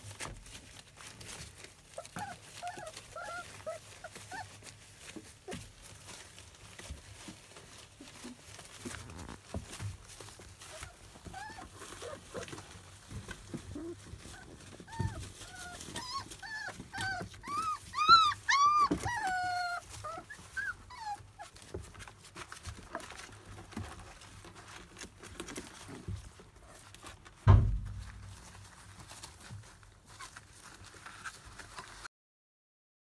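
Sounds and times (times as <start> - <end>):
knocks and rustling: 0.0 - 32.0
puppies whimpering and yelping: 0.5 - 27.3
loud thump: 27.4 - 28.4.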